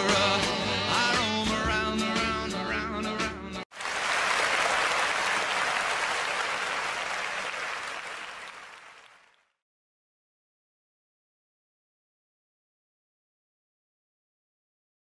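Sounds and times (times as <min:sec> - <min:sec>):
applause: 0:03.7 - 0:09.6.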